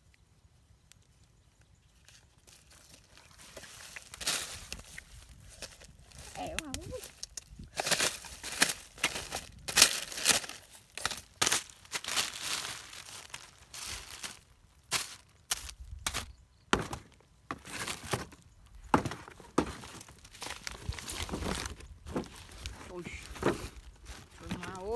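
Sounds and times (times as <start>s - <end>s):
plastic bags crinkling: 2.5s - 15.7s, 19.7s - 24.9s.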